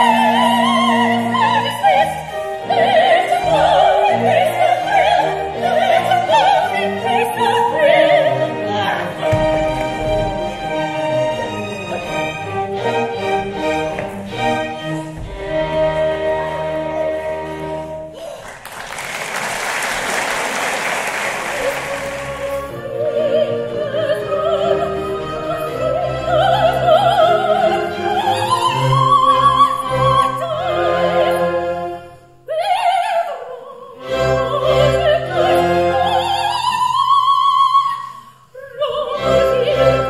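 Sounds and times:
chamber orchestra: 0.0s - 18.3s, 21.5s - 38.0s
opera singers with vibrato: 0.0s - 18.6s, 21.4s - 40.0s
audience applauding: 18.3s - 22.7s.

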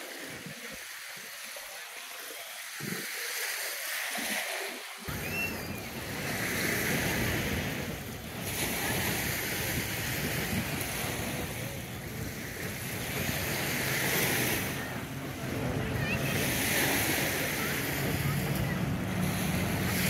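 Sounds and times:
waves washing on shore: 0.0s - 20.0s
wind buffeting microphone: 5.1s - 20.0s.

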